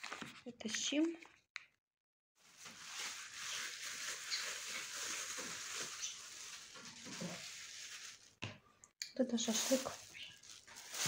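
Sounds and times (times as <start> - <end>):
plastic bag crinkling: 2.4 - 8.4, 9.3 - 11.0.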